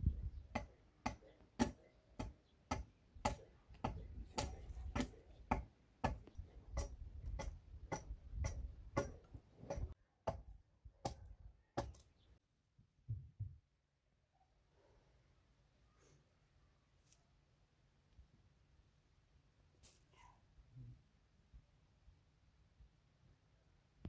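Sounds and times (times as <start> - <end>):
hatchet chopping wooden pole: 0.5 - 12.1.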